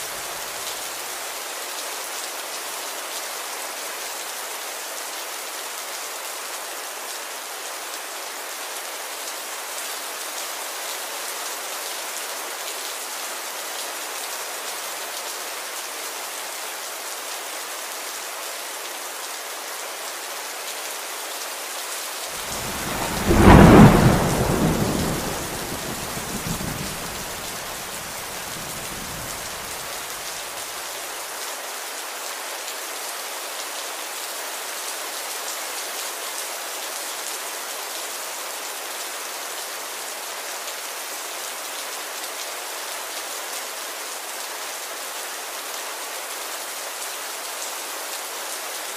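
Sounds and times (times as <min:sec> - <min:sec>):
steady rain: 0:00.0 - 0:48.9
thunderclap: 0:22.4 - 0:29.9.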